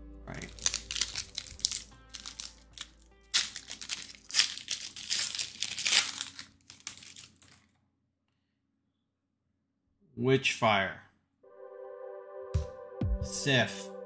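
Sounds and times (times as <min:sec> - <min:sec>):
faint background music: 0:00.0 - 0:06.4, 0:10.8 - 0:14.0
card pack wrapper tearing: 0:00.3 - 0:07.7.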